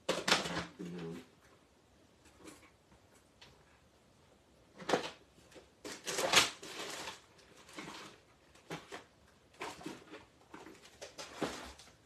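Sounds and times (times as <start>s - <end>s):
craft materials rustling: 4.7s - 12.0s.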